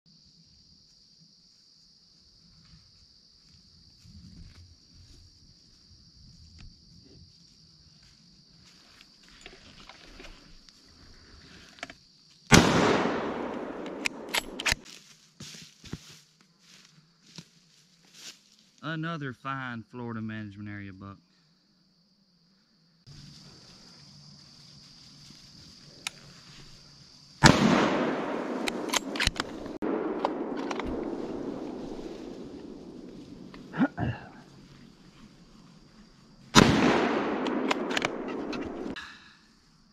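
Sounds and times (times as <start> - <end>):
high-pitched insect chorus: 0.1 - 39.9
gunshot with echo: 12.5 - 14.7, 27.4 - 33.5, 36.6 - 39.0
sharp clicks: 13.4 - 14.8, 28.5 - 31.1, 37.4 - 38.9.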